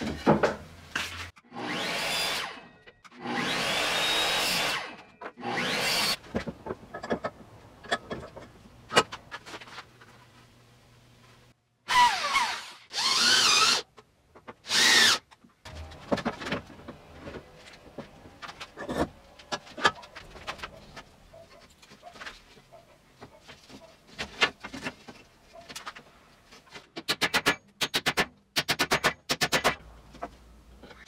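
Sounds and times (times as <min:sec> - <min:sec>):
electric drill whirring: 0:03.2 - 0:06.2, 0:11.9 - 0:13.8, 0:14.7 - 0:15.2.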